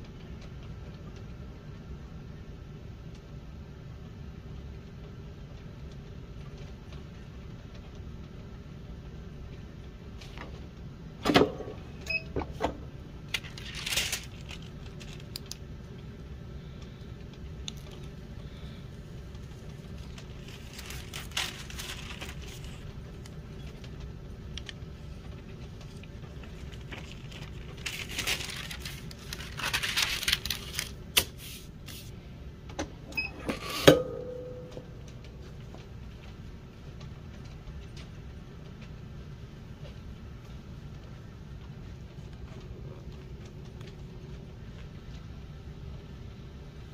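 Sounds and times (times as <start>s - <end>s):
steady low hum: 0.0s - 46.9s
rustling scrapes and clicks: 13.3s - 15.6s, 19.3s - 24.0s, 24.6s - 32.1s.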